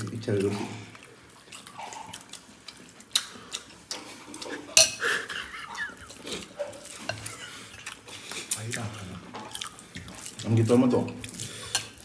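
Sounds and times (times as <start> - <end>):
metal spoons clinking on bowls: 4.7 - 5.4.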